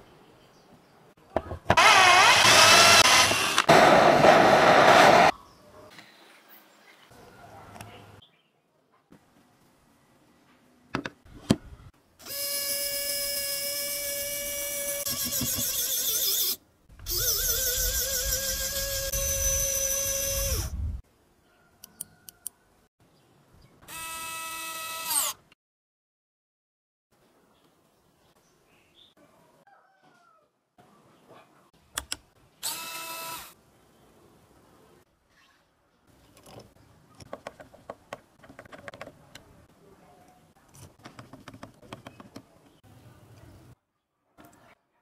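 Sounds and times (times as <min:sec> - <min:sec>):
small motor whining: 0:01.7 - 0:05.3, 0:12.2 - 0:20.8.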